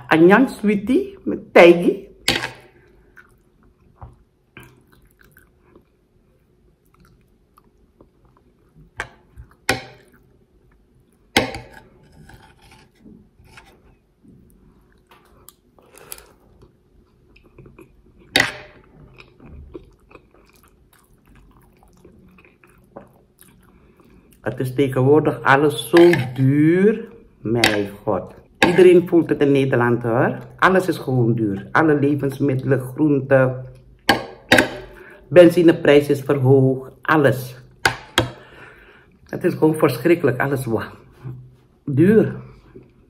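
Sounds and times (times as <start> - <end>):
person chewing: 2.4 - 13.0, 13.6 - 24.4.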